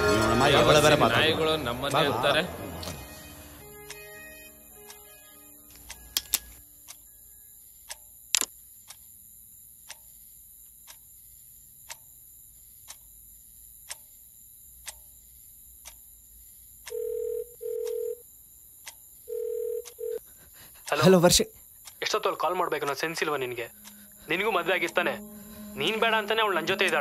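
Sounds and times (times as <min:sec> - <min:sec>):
clock ticking faintly: 0:03.8 - 0:04.0, 0:05.7 - 0:07.2, 0:07.8 - 0:09.2, 0:09.8 - 0:11.2, 0:11.8 - 0:12.2, 0:12.8 - 0:13.2, 0:13.8 - 0:14.2, 0:14.8 - 0:15.2, 0:15.8 - 0:16.2, 0:18.8 - 0:27.0
sharp click: 0:05.7 - 0:07.0, 0:07.9 - 0:09.0
phone ringing tone beeps: 0:16.9 - 0:18.2, 0:19.3 - 0:20.2.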